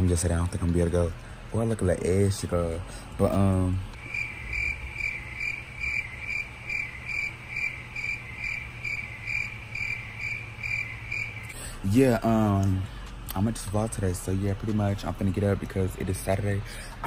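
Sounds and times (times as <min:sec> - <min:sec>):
cricket chirping: 0:03.9 - 0:11.6.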